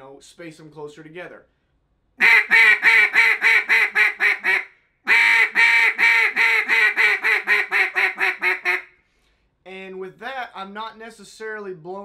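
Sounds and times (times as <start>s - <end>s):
duck call quacks: 2.2s - 8.9s.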